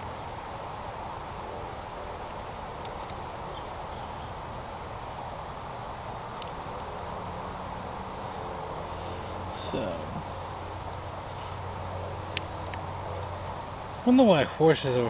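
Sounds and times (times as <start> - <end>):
background hiss: 0.0 - 15.0
low hum: 0.0 - 15.0
thin high-pitched whine: 0.0 - 15.0
faint ticks: 6.4 - 6.6.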